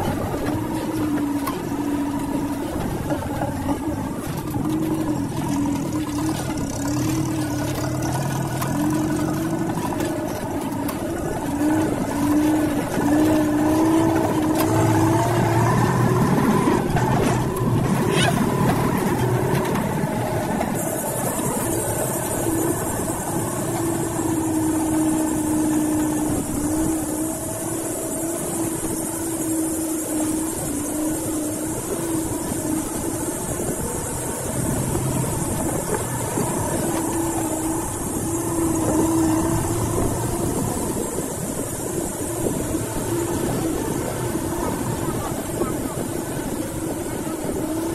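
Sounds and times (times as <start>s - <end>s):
vehicle engine droning: 0.0s - 47.9s.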